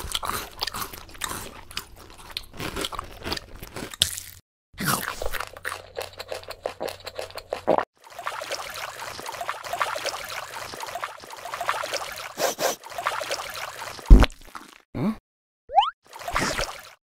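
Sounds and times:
wet squelching and sloshing in mud: 7.6s - 14.8s, 16.1s - 17.0s.

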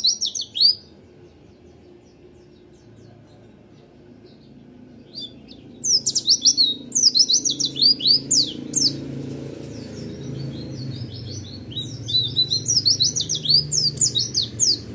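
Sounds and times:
bird singing whistled notes: 0.0s - 1.0s, 5.0s - 9.0s, 9.6s - 14.9s.

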